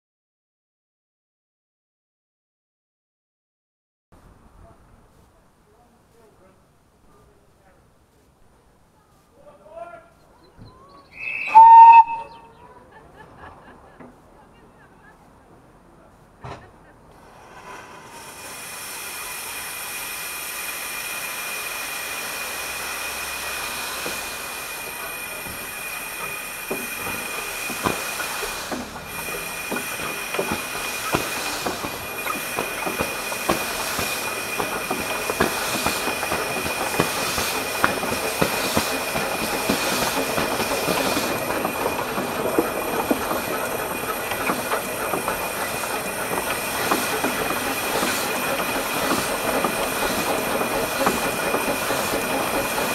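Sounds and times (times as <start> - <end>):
steam hissing: 11.2 - 12.3, 17.2 - 52.9
train wheels knocking on track: 21.1 - 52.9.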